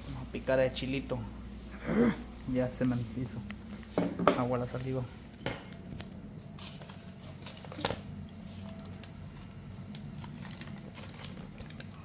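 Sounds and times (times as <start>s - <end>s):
low steady hum: 0.0s - 12.0s
aluminium foil crinkling: 6.4s - 12.0s.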